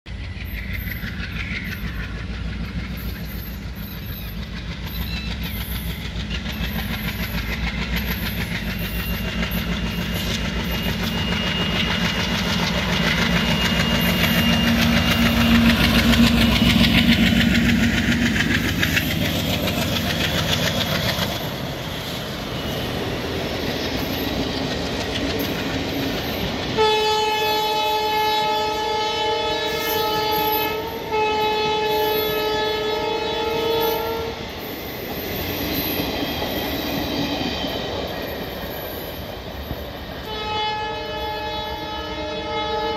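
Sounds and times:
diesel locomotive engine rumble: 0.0s - 42.9s
train wheels on rails: 0.1s - 42.9s
train horn: 26.7s - 34.5s, 40.2s - 42.9s.

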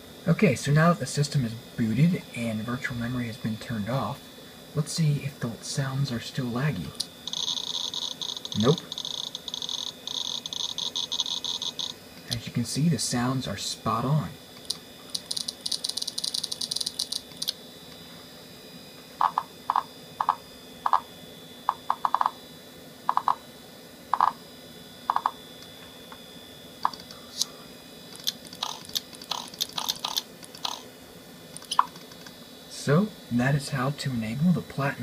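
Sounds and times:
computer interface ticks: 7.0s - 12.4s, 28.2s - 30.8s
computer interface blips: 7.2s - 12.0s, 28.2s - 30.9s, 31.6s - 32.2s.

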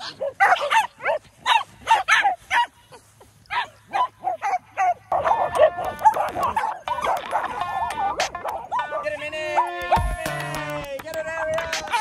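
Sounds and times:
small dogs yapping: 0.0s - 10.0s
music: 6.9s - 12.0s.

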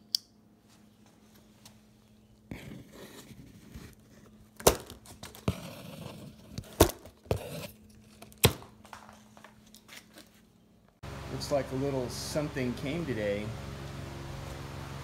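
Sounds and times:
blade scraping cardboard: 2.5s - 7.8s.

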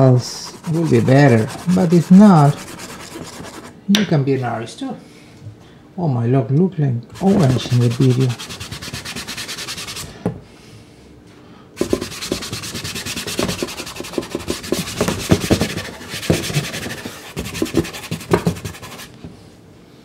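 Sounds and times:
pastel rasping on sanded card: 0.4s - 3.7s, 7.2s - 10.1s, 11.8s - 19.1s.

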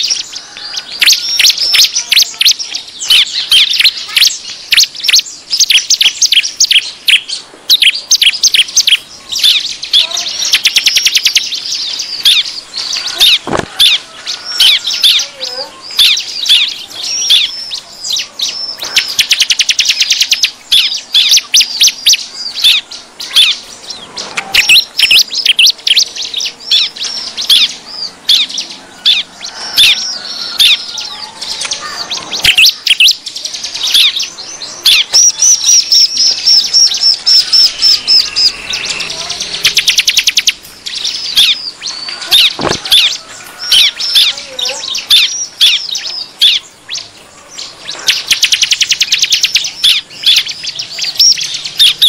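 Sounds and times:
bird sharp repeated chirps: 0.0s - 52.0s.

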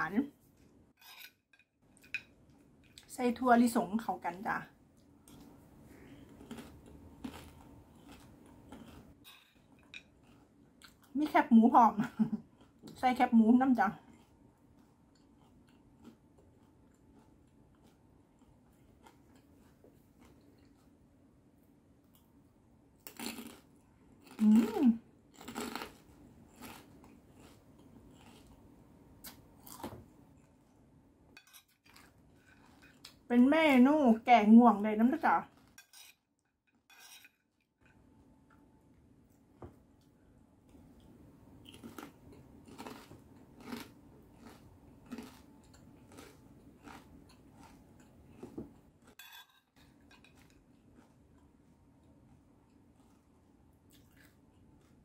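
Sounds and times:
crunchy chewing: 5.2s - 11.1s, 14.0s - 21.0s, 23.0s - 30.6s, 41.0s - 49.2s, 49.8s - 55.0s.

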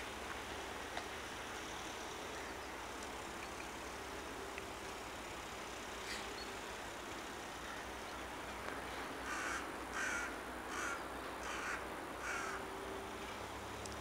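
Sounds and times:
crow cawing: 9.2s - 12.6s.

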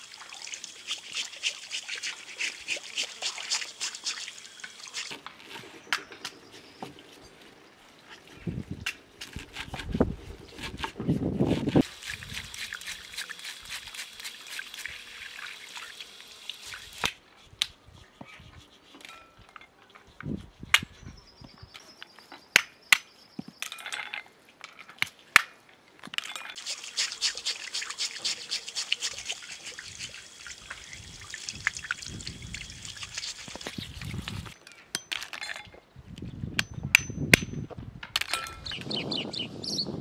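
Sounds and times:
water pouring: 0.0s - 5.2s, 11.7s - 17.1s, 26.6s - 34.6s
plastic brush scrubbing: 0.8s - 5.7s, 9.2s - 15.1s, 26.6s - 30.9s, 32.8s - 34.6s.

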